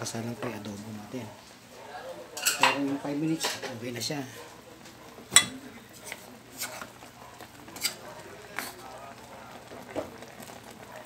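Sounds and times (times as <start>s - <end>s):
stew simmering hiss: 0.0s - 11.0s
sharp cooking pops: 4.9s - 8.9s, 9.6s - 10.8s.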